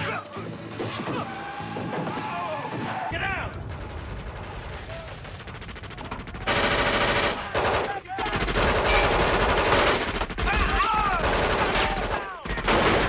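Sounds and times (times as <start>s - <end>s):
rapid automatic gunfire: 3.7s - 13.0s.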